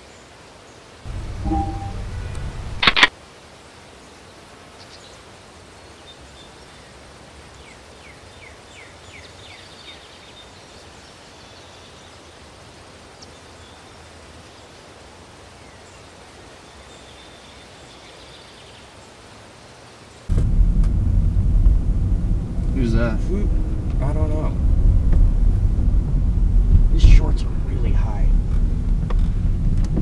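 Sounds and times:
outdoor background noise: 0.0 - 30.0
faint high chirps: 1.1 - 2.4
bird singing falling notes: 1.1 - 2.8.

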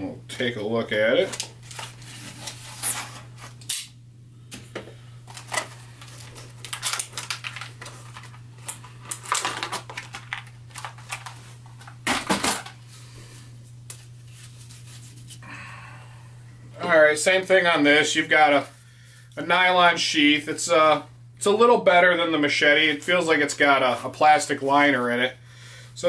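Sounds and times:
plastic packaging crackling: 1.2 - 3.3, 5.2 - 12.8.

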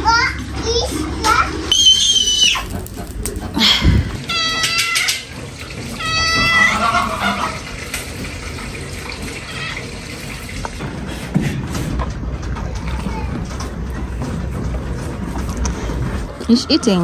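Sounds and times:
cat meowing: 4.2 - 5.2, 6.0 - 7.4, 9.4 - 9.9.

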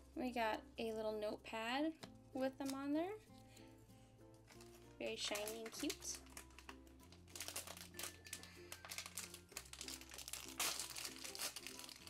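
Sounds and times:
light background music: 0.0 - 12.0
packaging crinkling: 4.4 - 12.0.

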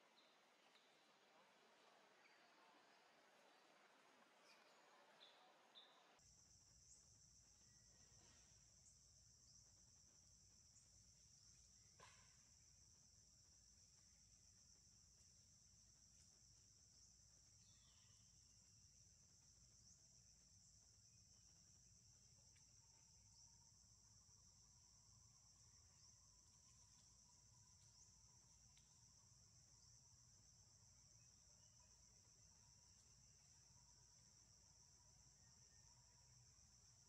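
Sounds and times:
high-pitched insect chorus: 4.4 - 37.0.

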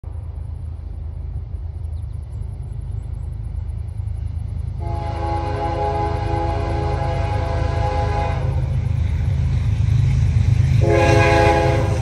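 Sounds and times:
freight train rumble: 0.0 - 12.0
locomotive air horn chord: 4.8 - 8.7, 10.8 - 12.0.

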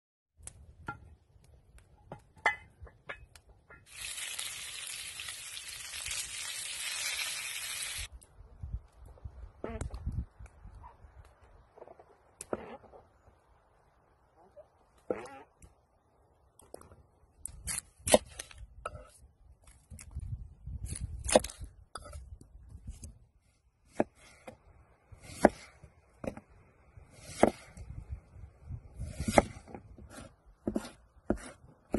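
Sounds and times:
chicken sizzling in a pan: 3.9 - 8.1.

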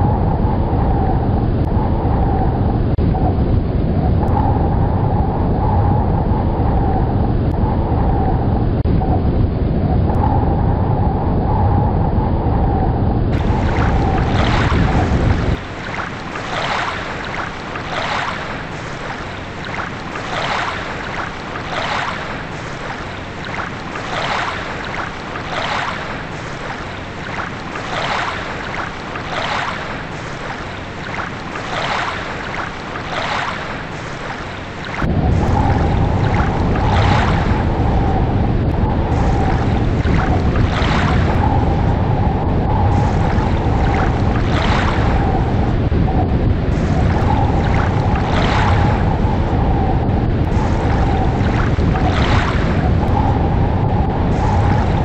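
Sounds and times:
deep storm-like rumble: 0.0 - 17.7, 34.9 - 55.0
waves washing in: 13.3 - 55.0.

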